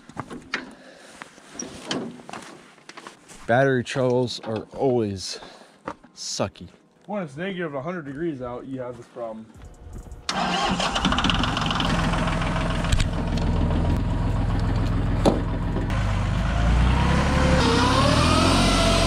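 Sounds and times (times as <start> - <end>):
tractor engine idling and revving: 9.6 - 19.0.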